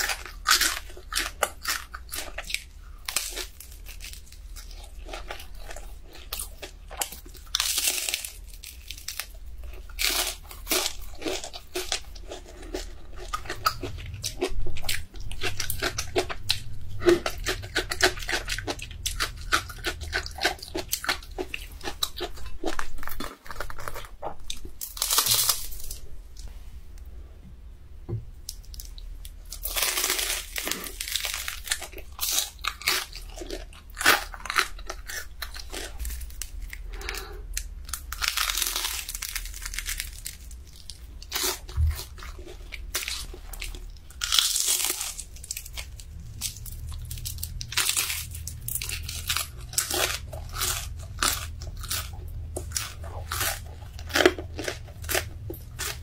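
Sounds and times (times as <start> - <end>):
crunchy food being bitten and chewed: 0.0 - 26.5, 28.4 - 56.0.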